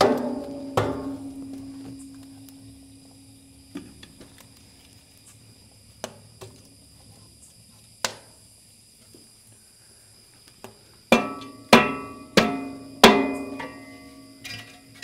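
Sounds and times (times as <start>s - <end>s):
metal ringing: 0.0s - 2.4s.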